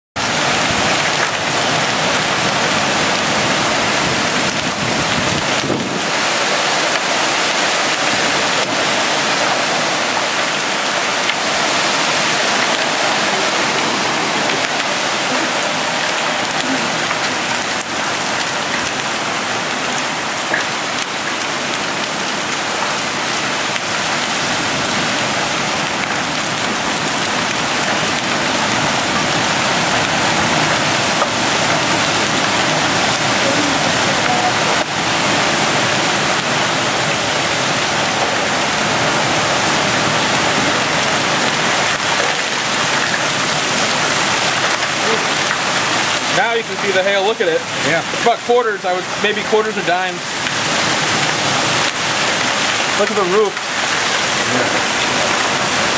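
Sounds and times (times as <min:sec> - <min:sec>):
strong wind: 0:00.2 - 0:20.3
heavy rain: 0:00.2 - 0:55.9.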